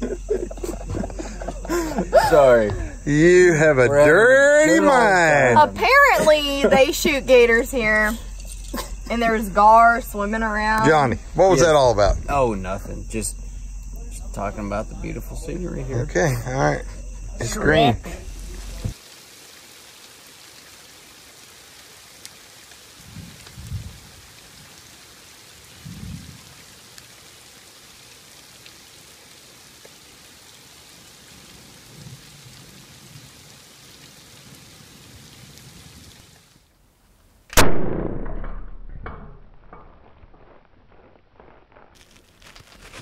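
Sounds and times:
rain hissing: 0.0s - 37.6s, 39.3s - 43.0s
crossbow firing crack: 37.5s - 42.8s.

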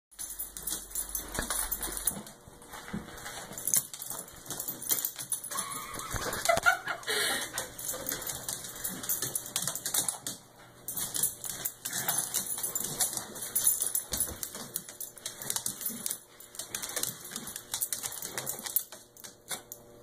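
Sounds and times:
clicking and rustling: 0.2s - 19.8s.

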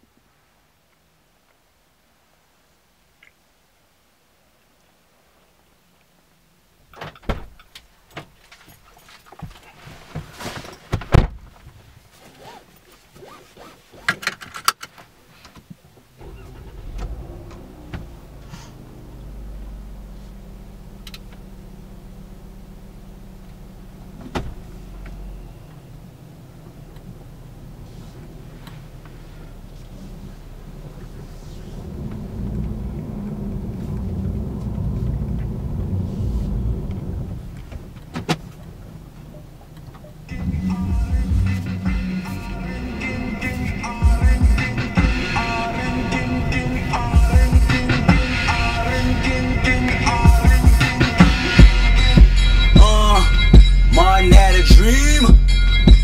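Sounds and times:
car door thumping shut: 7.0s - 7.6s, 10.9s - 11.5s, 24.2s - 24.6s
car engine starting and idling: 16.0s - 56.0s.

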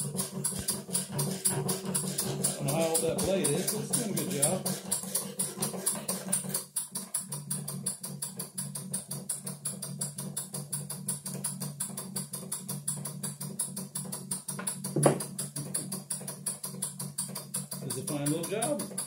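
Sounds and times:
model steam engine clattering: 0.0s - 19.0s
thump: 15.0s - 15.2s.

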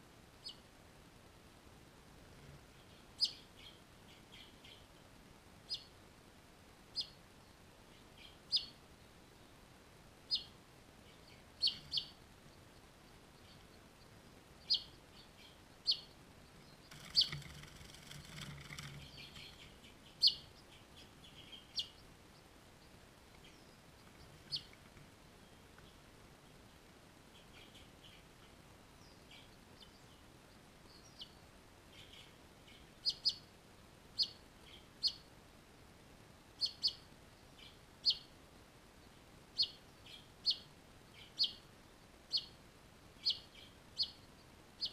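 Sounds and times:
soft rustling hiss: 0.0s - 44.9s
finch chirps: 0.4s - 0.6s, 2.3s - 5.0s, 5.6s - 5.9s, 6.9s - 7.2s, 7.9s - 9.4s, 10.3s - 26.0s, 27.3s - 33.5s, 34.2s - 35.3s, 36.6s - 38.3s, 39.0s - 42.6s, 43.2s - 44.9s.

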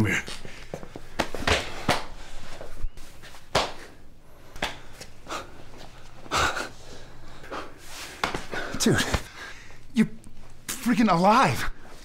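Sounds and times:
breathing: 6.8s - 9.8s.

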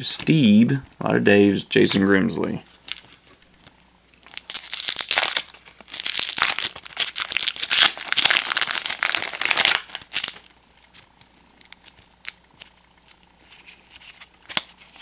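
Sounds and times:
foil wrapper crinkling: 2.8s - 15.0s.

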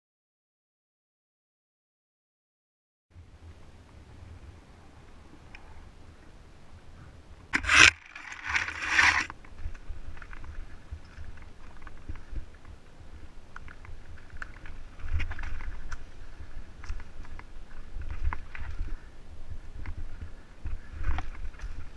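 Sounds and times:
bike rattling: 7.5s - 21.9s
bike tires crunching on dirt: 7.5s - 21.9s
loud scraping rush: 7.6s - 9.3s.

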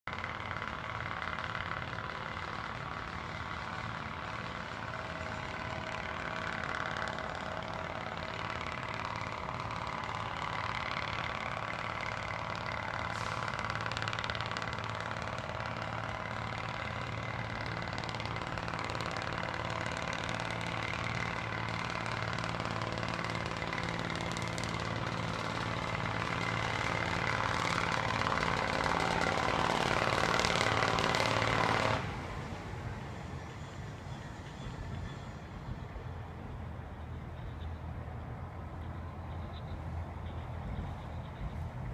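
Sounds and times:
locomotive engine running: 0.0s - 41.9s.

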